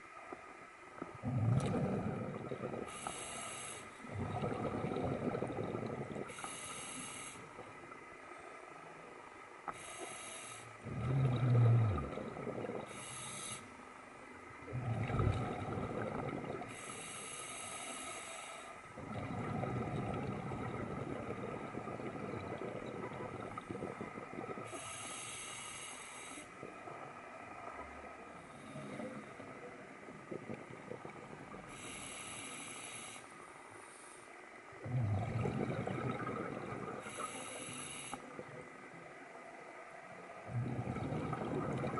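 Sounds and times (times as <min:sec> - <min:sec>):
exhaled bubbles rushing: 0:01.2 - 0:03.0, 0:04.1 - 0:06.3, 0:10.8 - 0:13.0, 0:14.7 - 0:16.8, 0:19.0 - 0:24.8, 0:28.7 - 0:31.8, 0:34.8 - 0:37.3, 0:40.4 - 0:41.9
regulator air hiss on inhale: 0:02.8 - 0:04.4, 0:06.2 - 0:07.6, 0:09.7 - 0:10.8, 0:12.8 - 0:13.9, 0:16.6 - 0:18.9, 0:24.6 - 0:26.6, 0:31.5 - 0:34.4, 0:37.0 - 0:38.5.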